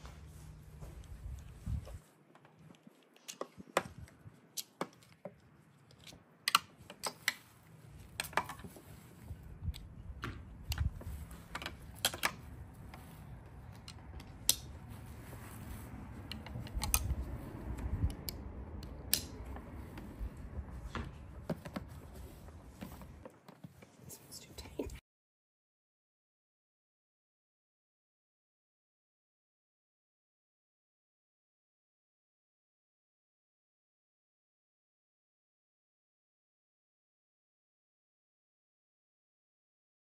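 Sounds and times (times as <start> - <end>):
straps rustling: 10.7 - 17.8
harness buckles clicking: 16.2 - 18.3.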